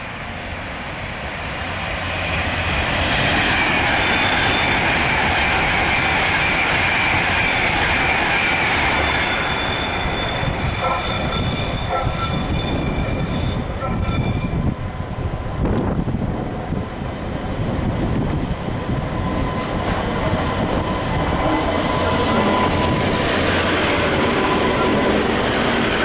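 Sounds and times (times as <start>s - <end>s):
train running in: 0.0s - 26.0s
metal wheel squeal: 9.0s - 14.6s.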